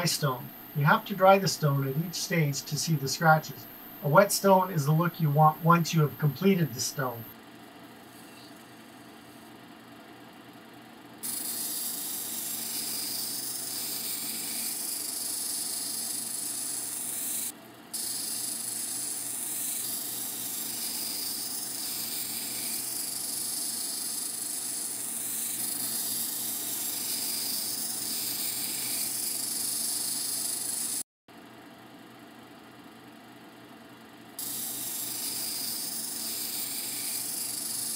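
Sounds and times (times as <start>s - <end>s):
low machine hum: 0.0s - 7.3s.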